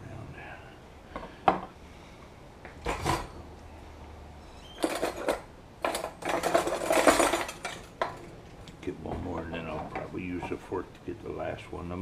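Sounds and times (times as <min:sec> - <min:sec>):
cutlery clinking in a drawer: 0:04.8 - 0:08.2.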